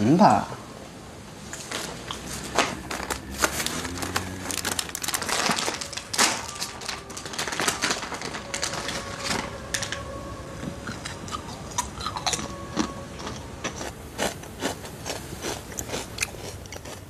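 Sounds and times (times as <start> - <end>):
crunching and chewing: 1.5 - 9.2, 10.6 - 17.0
plastic snack bag crinkling: 1.6 - 10.0.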